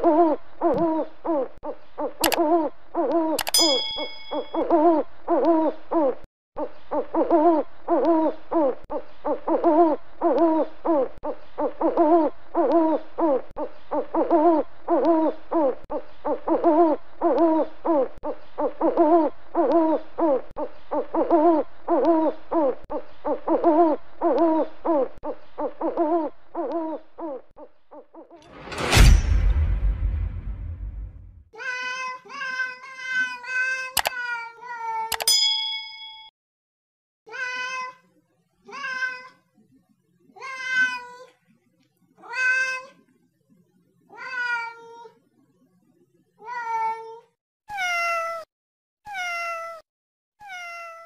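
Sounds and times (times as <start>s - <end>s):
loud whoosh: 28.5s - 31.4s.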